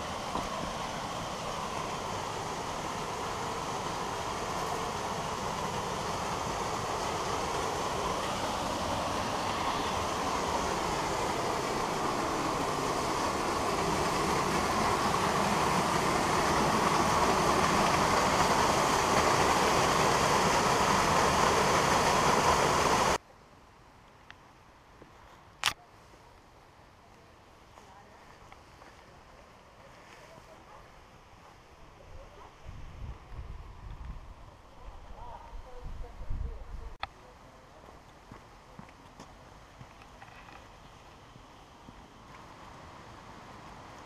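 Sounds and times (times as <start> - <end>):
waterfall roaring into pool: 0.0 - 23.2, 37.0 - 44.0.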